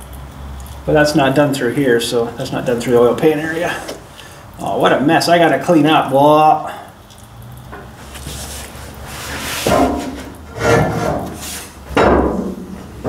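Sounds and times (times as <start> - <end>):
rubbing and scraping: 8.0 - 13.0.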